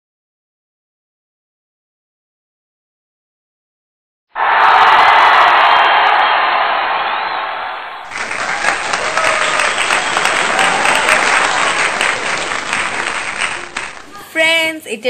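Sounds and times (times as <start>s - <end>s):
people clapping and cheering: 4.4s - 14.4s
voices: 8.1s - 15.0s.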